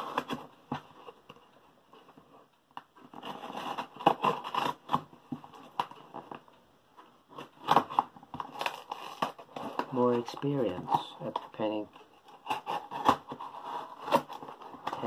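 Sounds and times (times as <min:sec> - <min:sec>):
knife cutting parcel packaging: 0:00.0 - 0:00.9, 0:03.1 - 0:06.3, 0:07.4 - 0:15.0.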